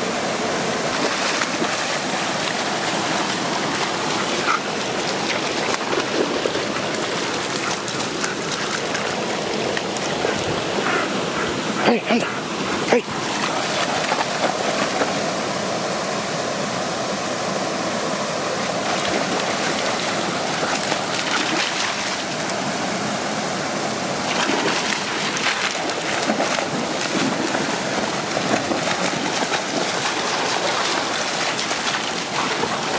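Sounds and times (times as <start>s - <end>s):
stream and waterfall rushing: 0.0s - 32.9s
dogs splashing in water: 0.8s - 11.1s, 13.0s - 15.4s, 18.8s - 22.6s, 24.2s - 32.9s.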